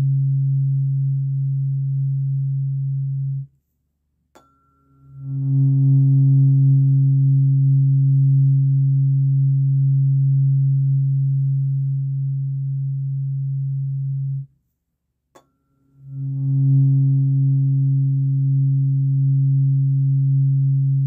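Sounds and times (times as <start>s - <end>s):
tuning fork ringing: 4.3s - 14.4s, 15.4s - 21.0s.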